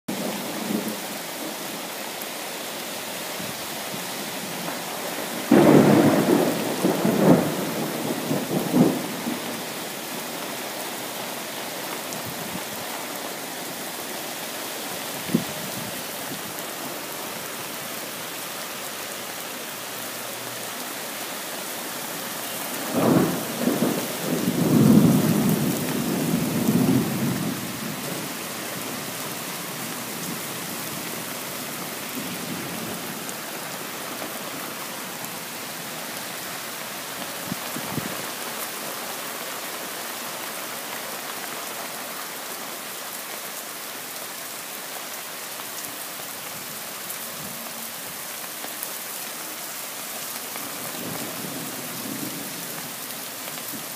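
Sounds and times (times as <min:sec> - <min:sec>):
steady rain: 0:00.0 - 0:53.9
thunder rumbling: 0:05.2 - 0:09.6, 0:22.7 - 0:28.4.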